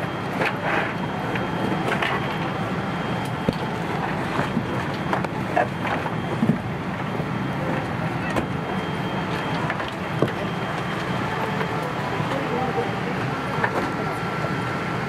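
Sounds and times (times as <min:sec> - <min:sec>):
airliner cabin noise: 0:00.0 - 0:15.0.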